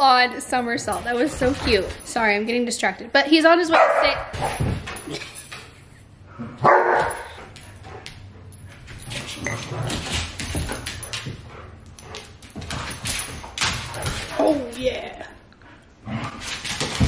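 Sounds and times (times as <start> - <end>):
dogs scuffling: 0.0 - 2.5, 6.6 - 15.1, 16.3 - 17.0
paws clicking on hard floor: 0.6 - 2.2, 6.6 - 14.8.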